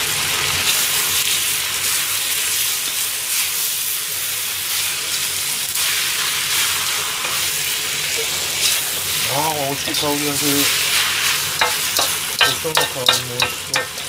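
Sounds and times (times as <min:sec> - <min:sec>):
food sizzling in a wok: 0:00.0 - 0:14.0
utensils scraping a pan: 0:08.2 - 0:14.0.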